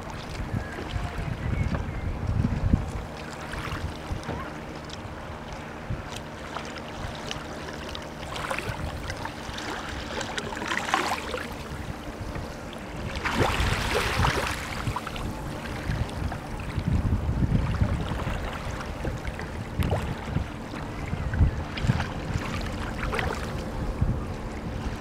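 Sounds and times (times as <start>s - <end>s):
low steady hum: 0.0s - 25.0s
small waves lapping on beach: 2.8s - 16.9s, 17.6s - 23.8s.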